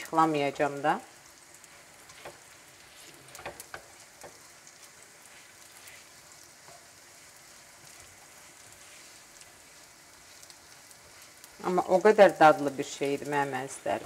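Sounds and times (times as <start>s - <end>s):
grains sizzling in oil: 0.0s - 14.0s
spatula scraping and tapping pan: 1.7s - 9.6s.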